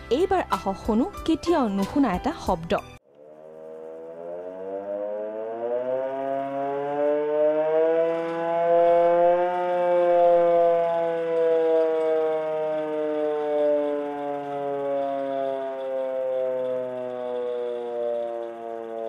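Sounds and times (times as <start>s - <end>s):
hand-cranked siren wailing: 3.0s - 19.0s.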